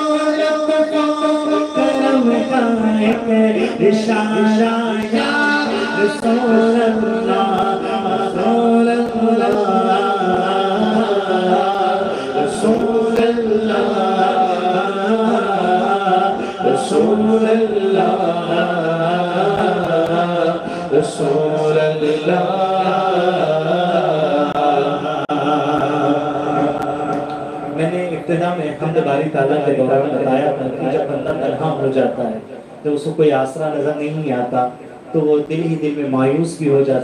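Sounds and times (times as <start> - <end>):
man chanting into a microphone: 0.0 - 37.0.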